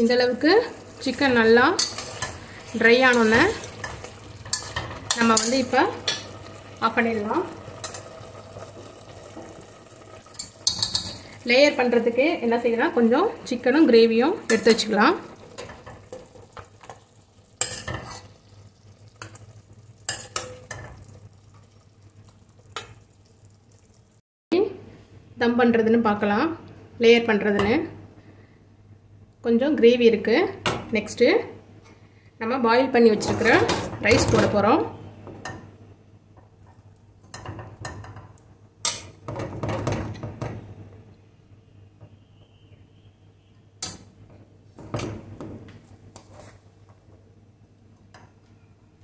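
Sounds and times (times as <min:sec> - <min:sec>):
spoon scraping metal pot: 0:01.7 - 0:06.3, 0:10.3 - 0:11.3, 0:17.6 - 0:18.4.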